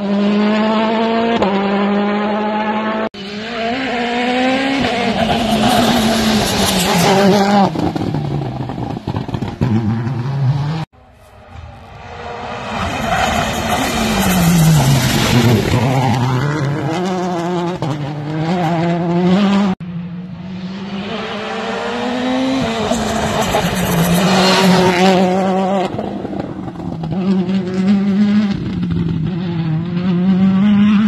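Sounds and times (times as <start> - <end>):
rally car engine passing: 0.0 - 31.0.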